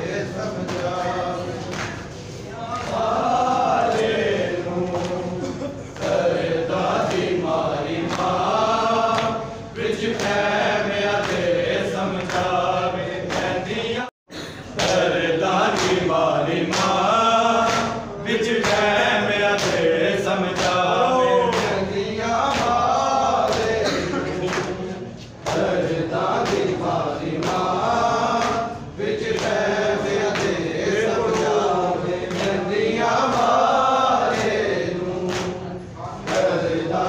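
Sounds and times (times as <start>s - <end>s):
rhythmic chest-beating: 0.0s - 37.0s
crowd of men chanting: 2.6s - 14.1s, 14.8s - 24.9s, 25.5s - 37.0s.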